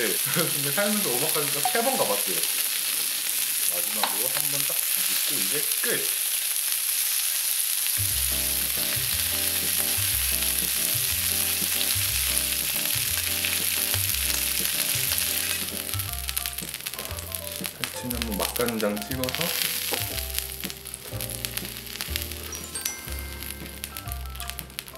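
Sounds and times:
steak sizzling on griddle: 0.0 - 24.9
background music: 1.6 - 2.2, 8.0 - 24.9.

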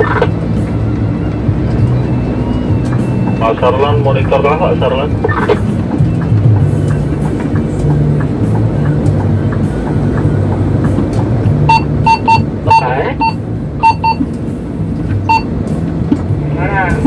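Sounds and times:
vehicle engine droning: 0.0 - 17.0
short high electronic beeps: 11.7 - 14.2.

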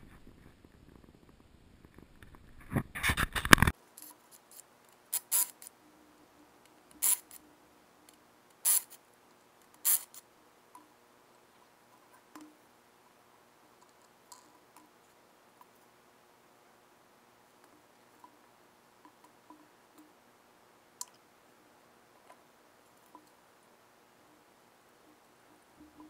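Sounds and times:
impact wrench bursts: 7.0 - 7.4, 8.6 - 9.0, 9.8 - 10.2
faint clicks of handled nuts: 13.8 - 15.9.

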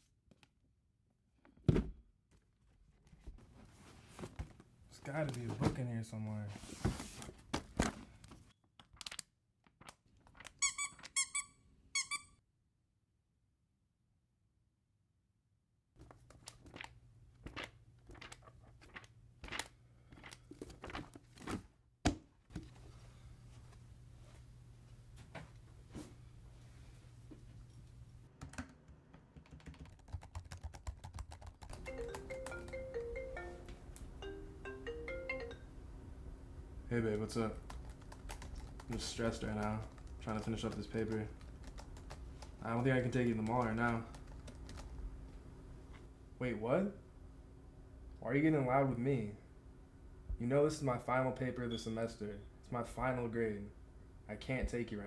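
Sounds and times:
rapid typing on laptop keyboard: 28.4 - 33.1, 37.1 - 45.0
phone ringing marimba ringtone: 31.8 - 35.8.

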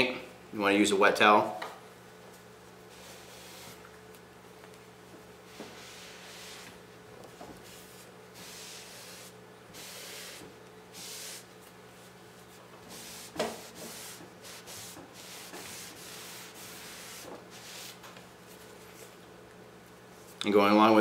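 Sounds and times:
cloth wiping wooden tabletop: 2.9 - 3.8, 5.5 - 6.8, 7.6 - 11.4, 12.9 - 18.0.

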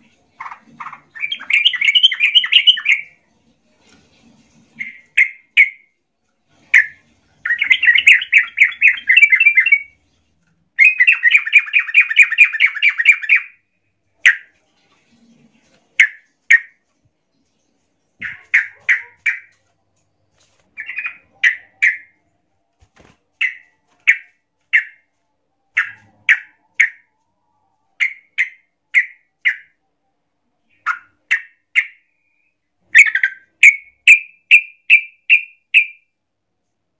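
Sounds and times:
bird chattering calls: 18.2 - 19.5.

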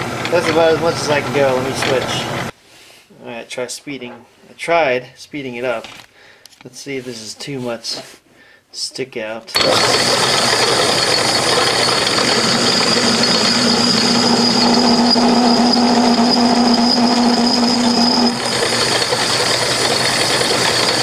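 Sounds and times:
low machine hum: 9.6 - 21.0
metal lathe cutting with whine: 9.6 - 21.0.

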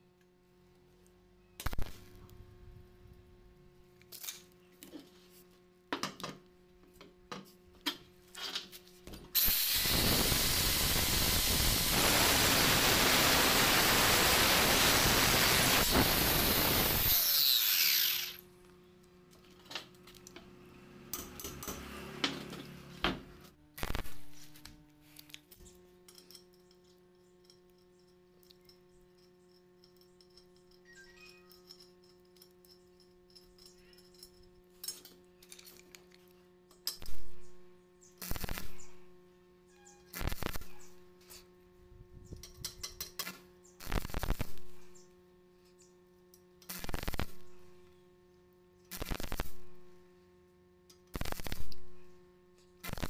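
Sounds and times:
welding arc hissing: 9.4 - 18.4, 23.8 - 24.7, 38.2 - 39.0, 40.1 - 40.9, 43.2 - 44.7, 46.6 - 47.5, 48.9 - 49.7, 51.1 - 51.9.

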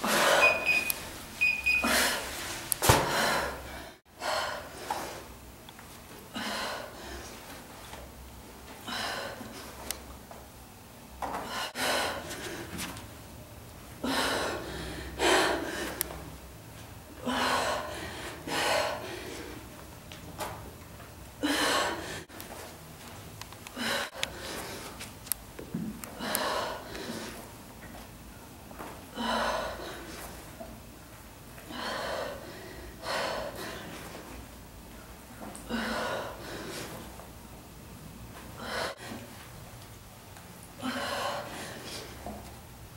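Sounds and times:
woman breathing hard: 0.0 - 0.7, 1.8 - 5.4, 6.3 - 7.6, 8.8 - 9.8, 11.3 - 12.9, 14.0 - 16.3, 17.1 - 19.7, 21.4 - 22.5, 23.7 - 25.0, 26.2 - 27.5, 29.1 - 30.6, 31.6 - 34.4, 35.4 - 37.2, 38.6 - 39.3, 40.8 - 42.4.

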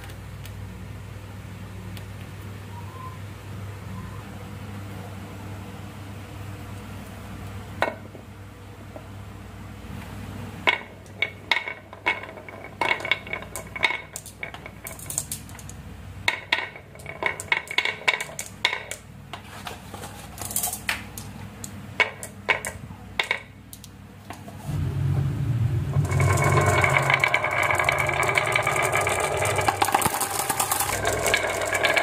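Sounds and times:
glass marbles clicking on wood: 26.1 - 32.0.

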